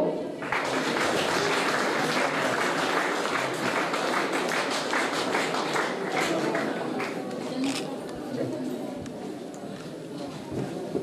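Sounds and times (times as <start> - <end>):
audience applauding: 0.4 - 7.3.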